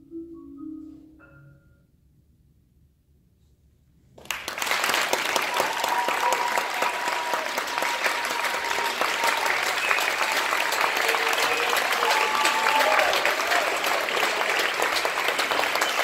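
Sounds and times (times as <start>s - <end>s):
audience applause: 4.2s - 16.0s.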